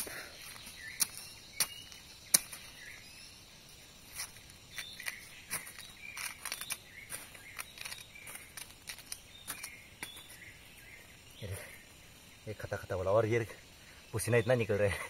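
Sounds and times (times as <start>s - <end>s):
machete chopping into soil: 0.0s - 2.9s
scraping soil by hand: 0.0s - 3.0s, 4.0s - 10.5s
dry leaves rustling: 3.8s - 11.0s.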